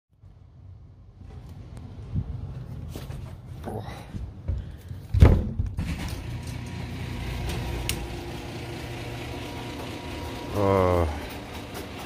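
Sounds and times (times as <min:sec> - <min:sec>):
low mechanical hum: 0:00.2 - 0:12.0
loud thump: 0:05.1 - 0:06.0.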